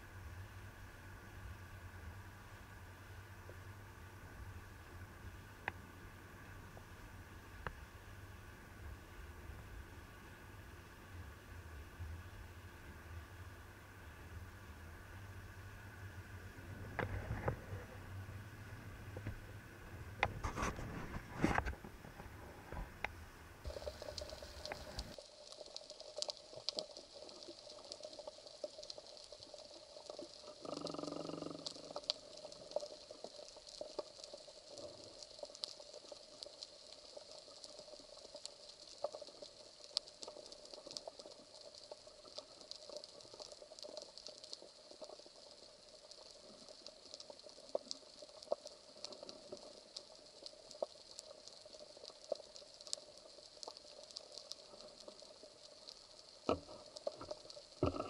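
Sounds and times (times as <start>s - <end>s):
low buzzing tone: 0.0s - 20.3s, 56.5s - 58.0s.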